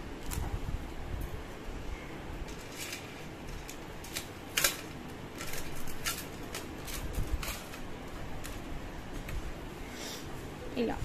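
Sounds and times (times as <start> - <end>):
plastic packet crinkling and clicking: 2.5 - 9.4.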